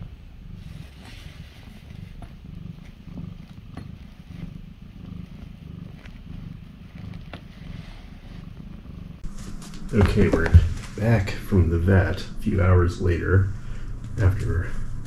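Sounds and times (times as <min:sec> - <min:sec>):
cat purring: 0:00.0 - 0:15.0
hand rustling fabric: 0:09.2 - 0:11.4.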